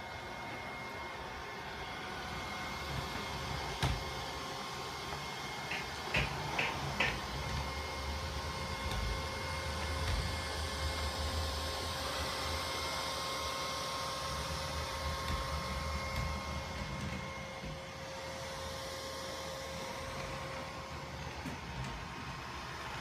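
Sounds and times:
robot vacuum humming and whining: 0.0s - 23.0s.

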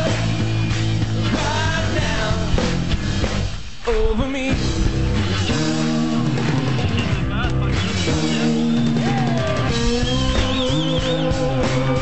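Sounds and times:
rock music with singing: 0.0s - 12.0s.

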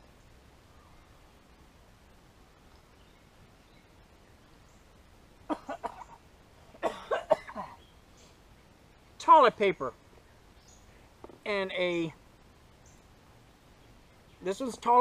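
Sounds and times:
man coughing: 5.5s - 6.2s, 6.8s - 7.8s.

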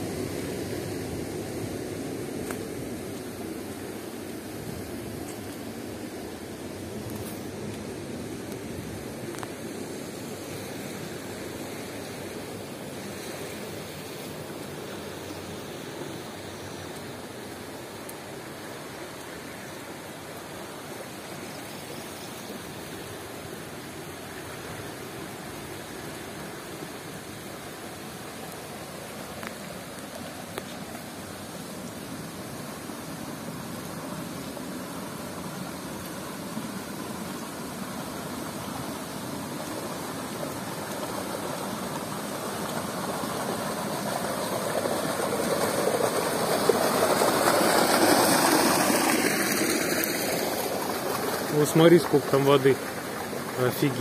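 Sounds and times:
rainwater rushing down a channel: 0.0s - 54.0s.

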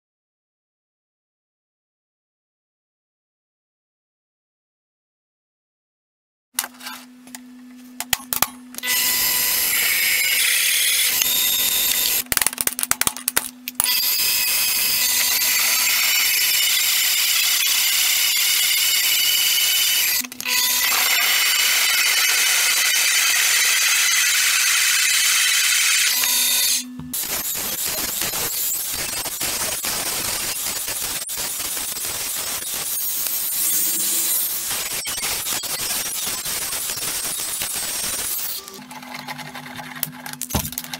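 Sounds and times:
angle grinder cutting steel: 8.8s - 12.2s, 13.8s - 38.8s
drill press drilling metal: 13.8s - 38.7s.

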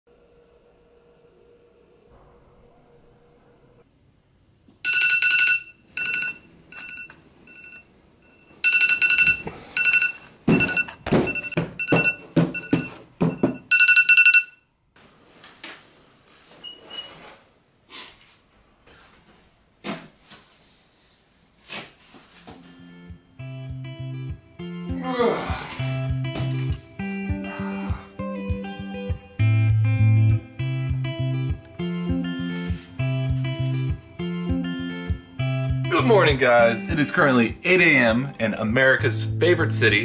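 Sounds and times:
phone alarm beeping: 4.8s - 14.6s.

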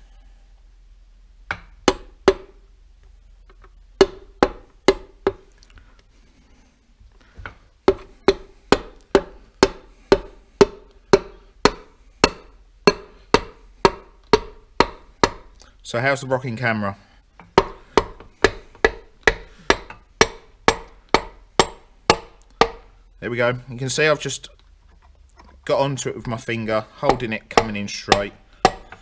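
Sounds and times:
knocking taps on metal: 1.5s - 2.6s, 3.5s - 5.5s, 7.4s - 15.5s, 17.4s - 22.9s, 27.0s - 29.0s.

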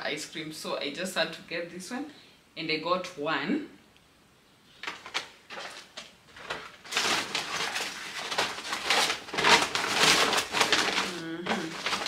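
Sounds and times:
shopping bag rustling and crinkling: 4.8s - 12.0s.

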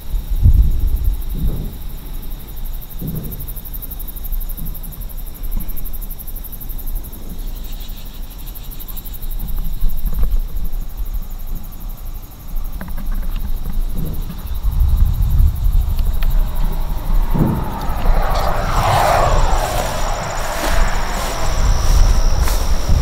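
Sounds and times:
wind rumble: 13.8s - 23.0s
high-pitched pulsing hiss: 15.1s - 23.0s.

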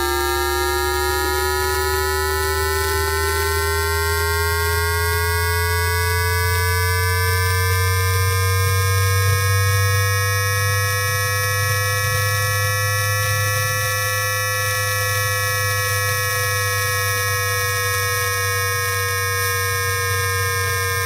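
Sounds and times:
electric inverter whining tones: 0.0s - 21.0s
steady low hum: 0.0s - 21.0s.

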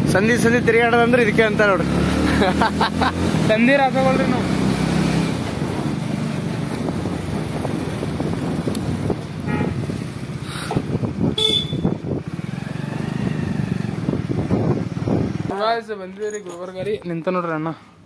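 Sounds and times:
motorcycle engine running: 3.5s - 15.5s
short horn toots: 11.4s - 12.0s.

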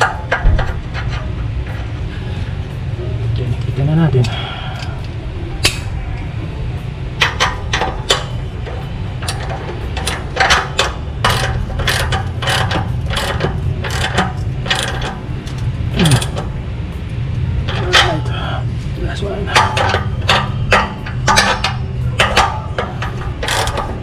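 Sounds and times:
socket ratchet wrench clicking: 9.2s - 16.4s, 19.6s - 24.0s.

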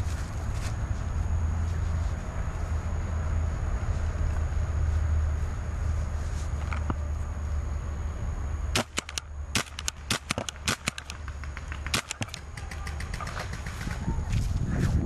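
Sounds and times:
paintball markers firing: 8.8s - 14.0s
wind rumble on microphone: 12.5s - 15.0s.

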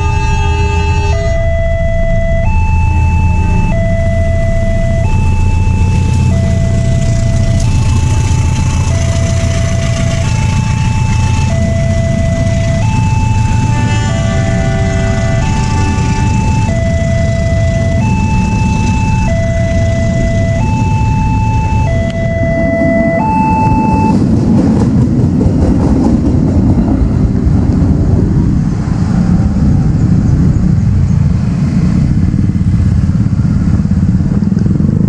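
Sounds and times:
two-tone crossing alarm: 0.0s - 24.4s
motorcycle engines: 0.0s - 35.0s
train coaches rumbling past: 6.0s - 17.1s, 22.6s - 34.2s.

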